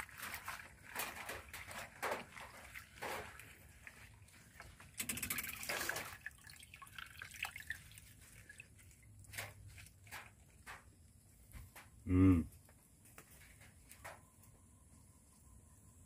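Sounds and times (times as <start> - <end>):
water sloshing and splashing: 0.0 - 10.9.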